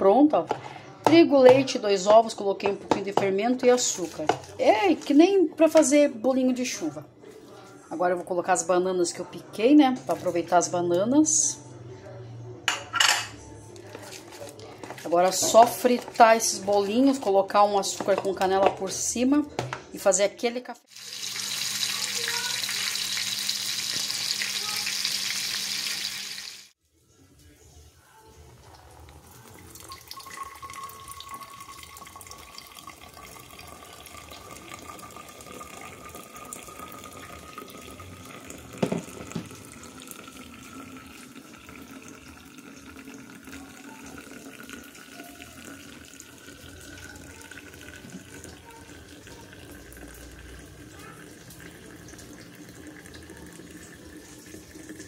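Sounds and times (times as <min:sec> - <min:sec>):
fritters sizzling in hot oil: 0:20.9 - 0:26.8.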